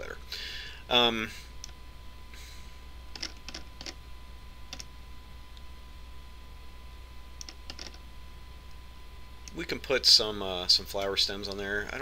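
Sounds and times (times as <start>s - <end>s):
faint electrical hum: 0.0s - 12.0s
mouse and keyboard clicks: 7.4s - 8.0s.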